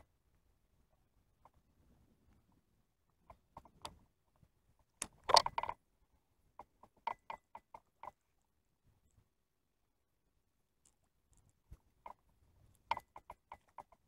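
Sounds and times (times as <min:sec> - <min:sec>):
sharp clicks and light knocks: 0:03.2 - 0:04.0, 0:04.8 - 0:05.8, 0:06.6 - 0:08.2, 0:10.8 - 0:14.0.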